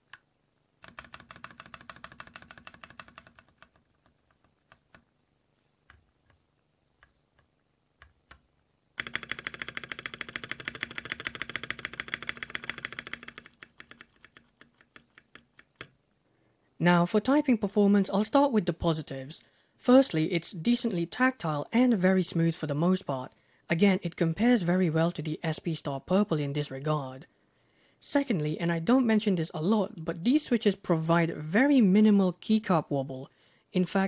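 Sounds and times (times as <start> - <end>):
mechanical keyboard typing: 0.8 - 5.0, 9.0 - 16.0.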